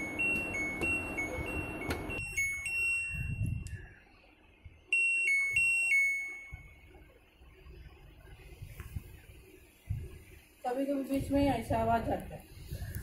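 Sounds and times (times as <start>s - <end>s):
washing machine alarm tune: 0.0s - 4.0s, 4.8s - 7.4s.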